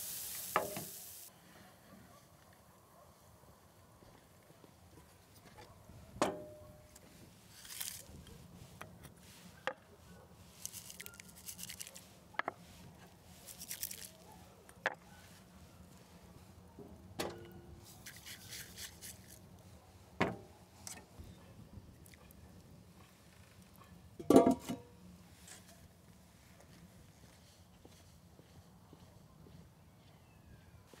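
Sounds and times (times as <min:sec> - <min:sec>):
peppercorns pattering into pan: 0:10.6 - 0:12.0, 0:13.5 - 0:14.2.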